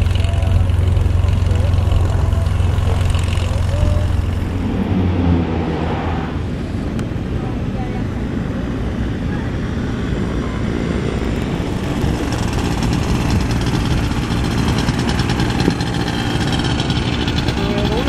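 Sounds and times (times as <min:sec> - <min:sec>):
small engine buzzing: 0:00.0 - 0:04.9, 0:10.7 - 0:18.0.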